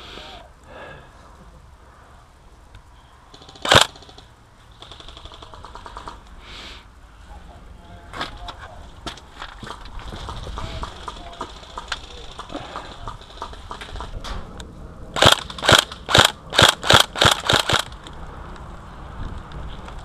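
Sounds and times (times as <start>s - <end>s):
airsoft rifle shots clacking: 3.4s - 6.2s, 15.2s - 18.0s.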